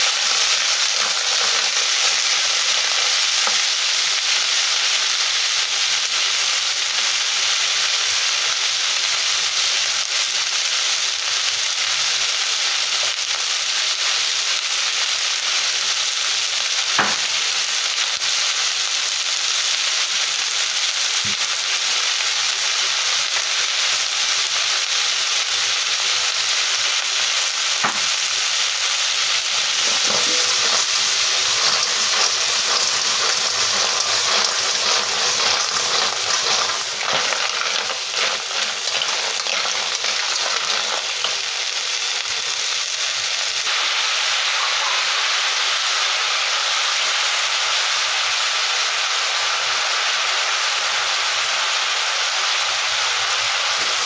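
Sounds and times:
snails sizzling in a wok: 0.0s - 54.0s
shells clattering against pan: 0.4s - 3.6s, 29.8s - 41.5s.

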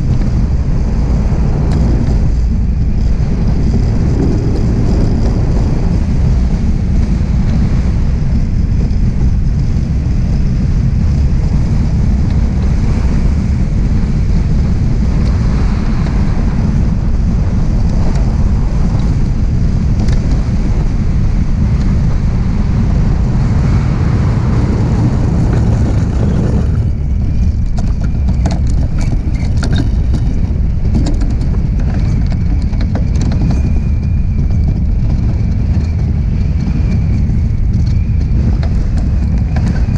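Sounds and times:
runners travelling over ice: 0.0s - 39.9s
wind buffeting microphone: 0.0s - 39.9s.

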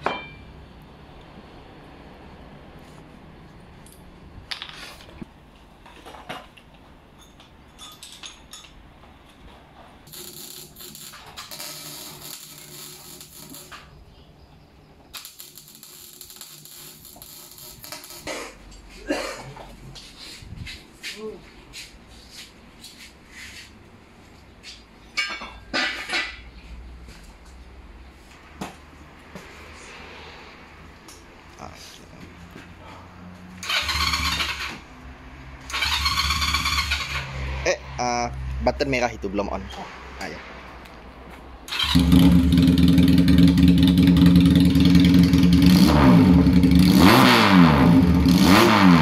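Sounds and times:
metal pipes clinking and knocking: 0.0s - 0.5s, 7.1s - 8.8s, 25.1s - 26.5s
metallic clinks and clatter: 7.2s - 8.8s
steady high hiss: 10.1s - 14.5s.

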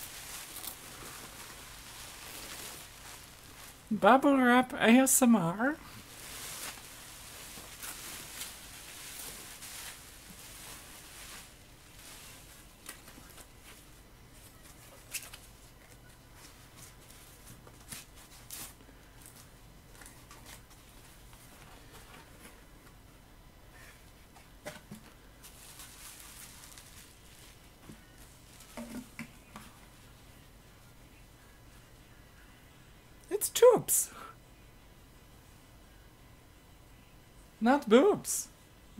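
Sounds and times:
bubble wrap crinkling and rustling: 0.0s - 22.6s, 24.7s - 30.8s.

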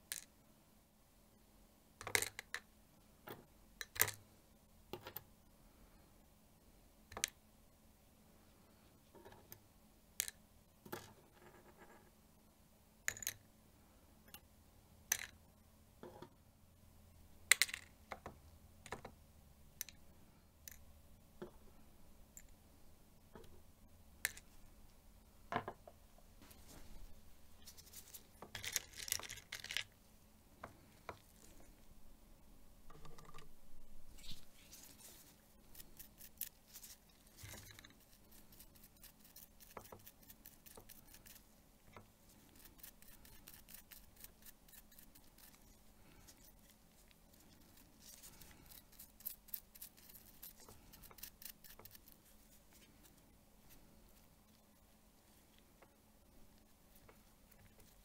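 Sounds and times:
stiff brush scratching: 34.1s - 41.5s, 42.3s - 55.6s.

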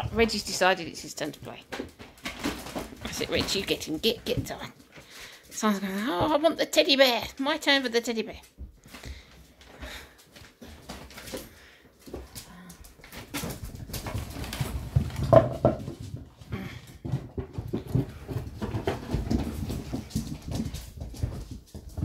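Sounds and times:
scuffling knocks and taps: 8.4s - 22.0s.

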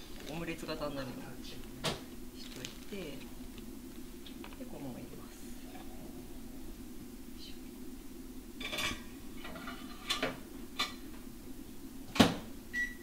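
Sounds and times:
steady low hum: 0.0s - 13.0s
microwave door shutting: 12.1s - 13.0s.

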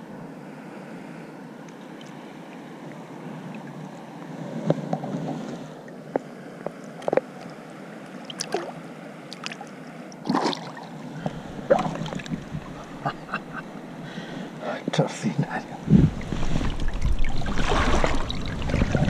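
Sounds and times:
river water flowing: 5.4s - 19.0s
fish splashing at the surface: 16.4s - 19.0s.

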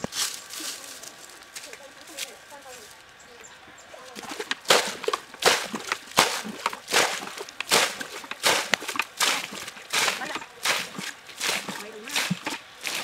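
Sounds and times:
bucket scooping and splashing water: 4.1s - 13.0s.

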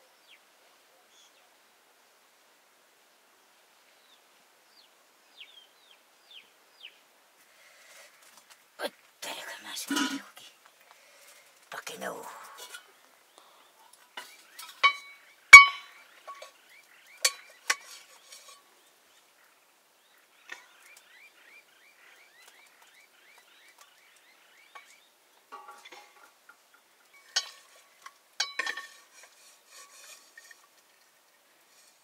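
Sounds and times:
metal utensils clinking: 9.9s - 10.3s, 12.3s - 12.9s, 14.2s - 16.6s, 17.2s - 18.6s, 25.5s - 31.0s.

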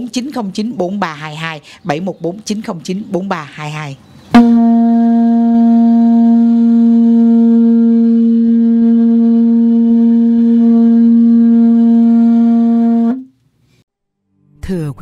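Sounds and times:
conch shell trumpet note: 4.3s - 13.4s.

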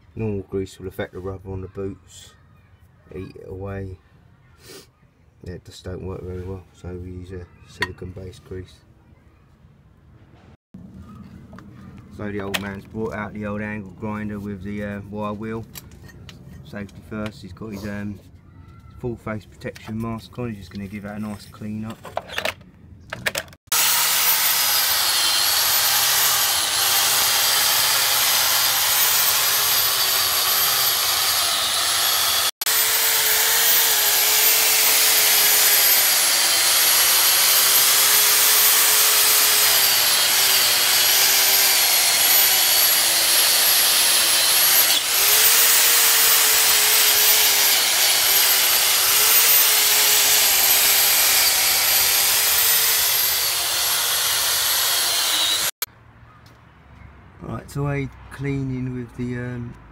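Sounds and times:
angle grinder with wire wheel: 23.7s - 55.8s.

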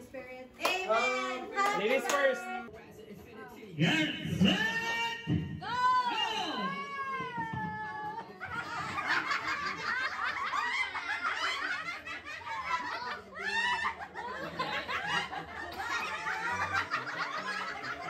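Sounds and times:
group of people laughing: 7.4s - 18.0s.

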